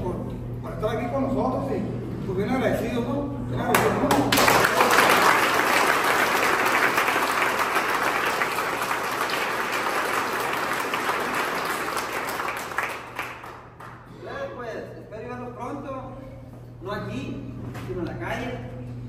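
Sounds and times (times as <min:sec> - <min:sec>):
audience applauding: 0:04.3 - 0:14.1.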